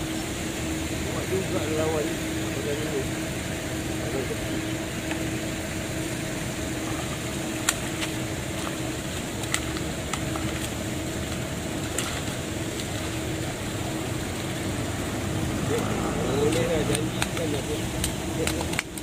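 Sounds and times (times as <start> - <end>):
low background hum: 0.0 - 19.0
sharp clicks: 16.5 - 19.0.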